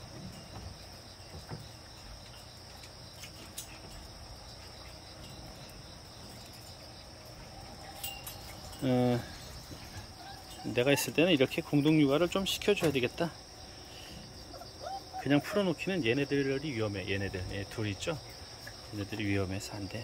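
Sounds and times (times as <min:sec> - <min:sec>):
high-pitched insect chirring: 0:04.8 - 0:15.4.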